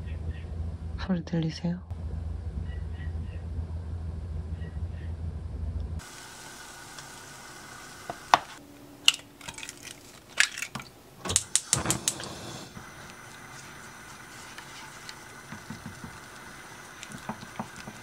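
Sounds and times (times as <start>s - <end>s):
low steady drone: 1.9s - 7.6s
eggshells tapping a frying pan: 15.4s - 18.0s.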